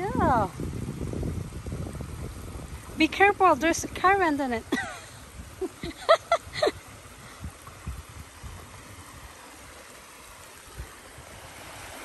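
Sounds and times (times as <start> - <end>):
voice: 0.0 - 0.5, 3.0 - 4.9
stream rushing over log dam: 0.0 - 12.0.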